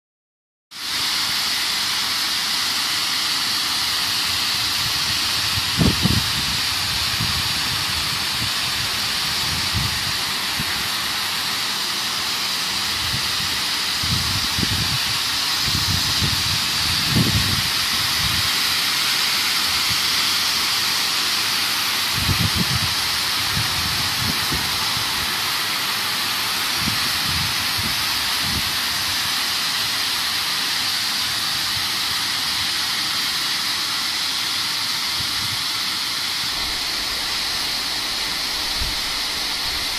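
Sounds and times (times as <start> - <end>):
high-pressure water spraying: 0.7 - 39.9
low rumbles: 36.5 - 39.9.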